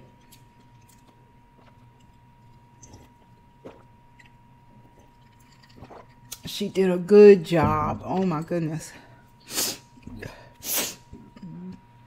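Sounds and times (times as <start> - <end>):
faint steady high hum: 0.0 - 12.0
person gulping and swallowing: 0.4 - 6.5, 11.0 - 12.0.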